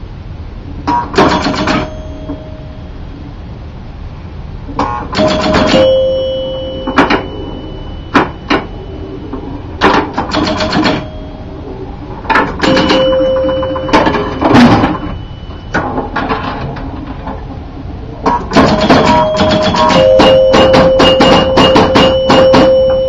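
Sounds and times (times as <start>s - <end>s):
pinball machine relay clicks: 0.9s - 2.4s, 4.8s - 7.5s, 9.8s - 11.2s, 12.3s - 16.5s, 18.3s - 23.0s
bell-like chime: 5.7s - 9.1s, 19.1s - 23.0s.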